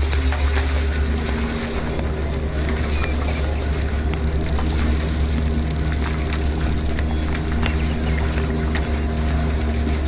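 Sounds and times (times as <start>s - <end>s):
steady low hum: 0.7s - 10.0s
rapid high electronic beeping: 4.2s - 7.0s.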